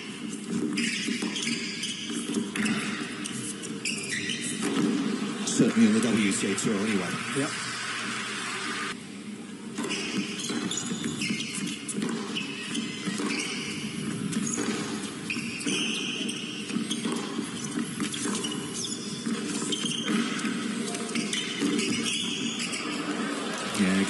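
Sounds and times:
shoes squeaking on court: 0.0s - 7.1s, 9.7s - 24.0s
racket hitting ball: 4.6s - 5.1s, 9.8s - 23.5s
crowd murmur: 22.9s - 24.0s.

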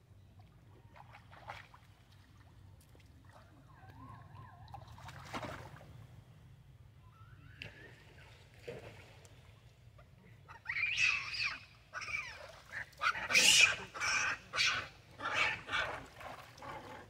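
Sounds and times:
macaques screeching: 10.6s - 12.4s, 13.0s - 15.8s.

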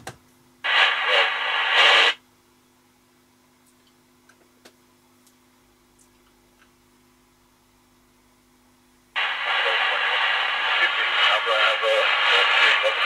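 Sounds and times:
faint steady hum: 0.0s - 13.0s
radio hiss burst: 0.6s - 2.2s, 9.2s - 13.0s.

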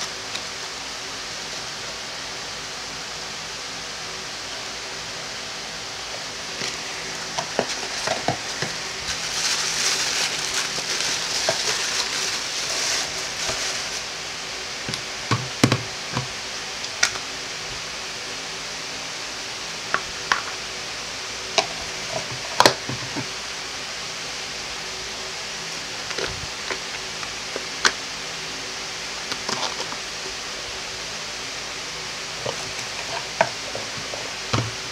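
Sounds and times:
packaging rustling: 6.6s - 14.1s.

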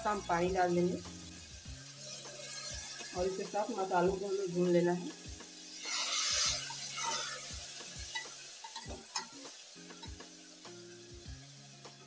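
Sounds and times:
spice paste sizzling: 0.0s - 12.0s
metal spoon scraping pot: 5.9s - 7.5s.

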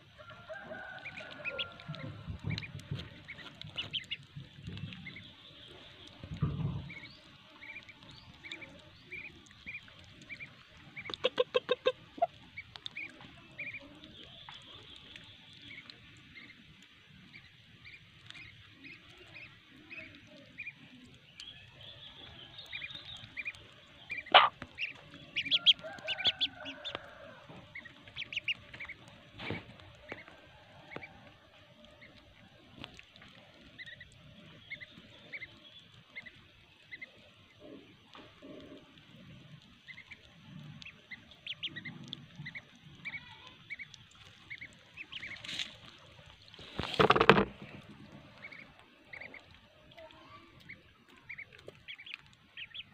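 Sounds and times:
ducklings peeping: 0.6s - 52.9s
hen clucking: 7.6s - 13.9s, 22.7s - 31.2s, 40.8s - 45.7s, 46.8s - 47.6s, 48.3s - 49.6s, 51.2s - 52.9s.

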